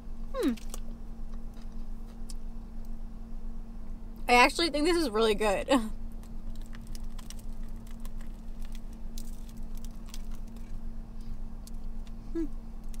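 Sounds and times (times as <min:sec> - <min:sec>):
steady low hum: 0:00.0 - 0:13.0
person humming: 0:00.4 - 0:00.6, 0:12.3 - 0:12.6
person chewing food: 0:06.4 - 0:10.8.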